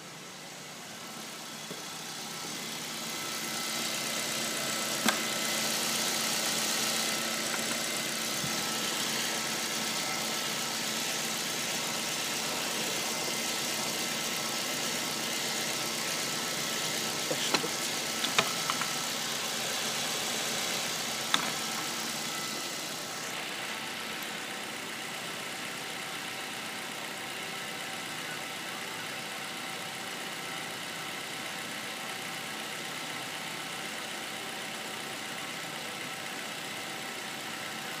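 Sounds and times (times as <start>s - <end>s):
car engine idling: 0.0s - 38.0s.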